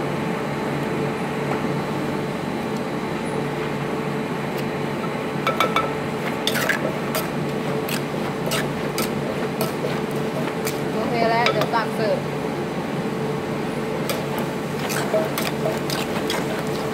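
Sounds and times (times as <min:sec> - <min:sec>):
steady background hum: 0:00.0 - 0:16.9
metal spoon scraping clay mortar: 0:06.4 - 0:11.0, 0:14.1 - 0:16.9.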